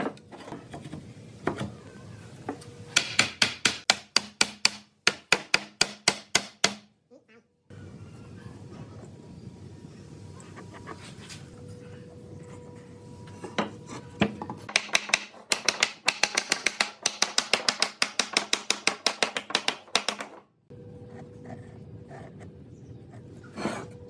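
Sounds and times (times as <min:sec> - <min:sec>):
wooden mallet tapping wood: 0:14.2 - 0:20.4.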